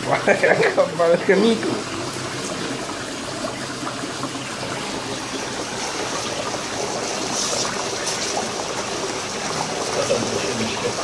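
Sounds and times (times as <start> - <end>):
dry ice bubbling: 0.0 - 11.0
tap water running: 0.0 - 11.0.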